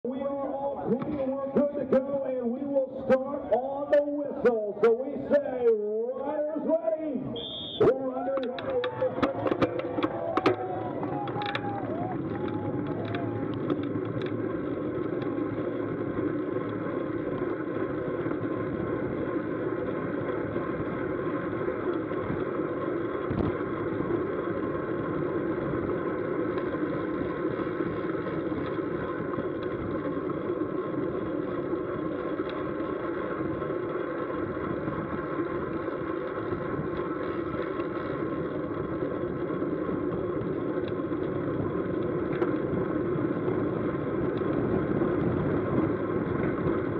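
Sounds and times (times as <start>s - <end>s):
wind and road noise: 0.0s - 46.9s.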